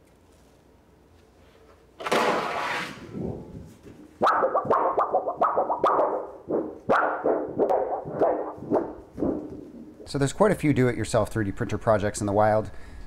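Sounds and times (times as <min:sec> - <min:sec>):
steel sheet rustling and wobbling: 0:02.2 - 0:10.2.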